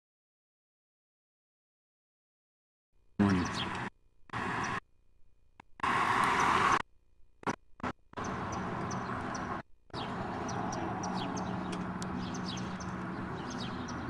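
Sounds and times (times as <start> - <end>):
birds chirping: 3.2 - 4.8, 8.1 - 14.0
street traffic hum: 3.2 - 14.0.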